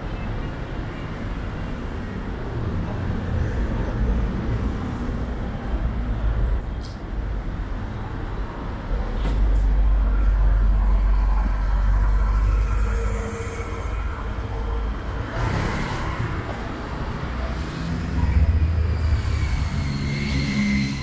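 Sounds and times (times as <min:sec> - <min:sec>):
vehicle passing by: 0:10.6 - 0:21.0.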